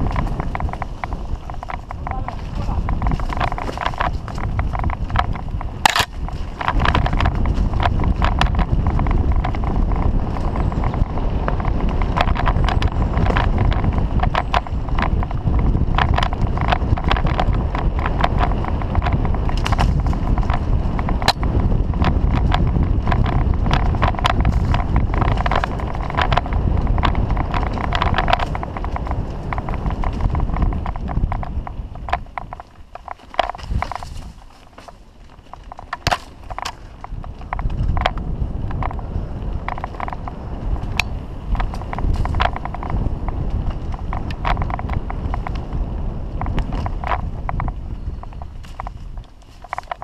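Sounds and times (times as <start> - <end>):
bike rattling over bumps: 0.0 - 50.0
bike tyres on dirt: 0.0 - 50.0
wind on microphone: 0.0 - 50.0.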